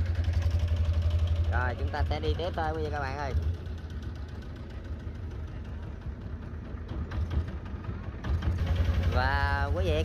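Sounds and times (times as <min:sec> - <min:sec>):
boat engine throbbing: 0:00.0 - 0:10.0.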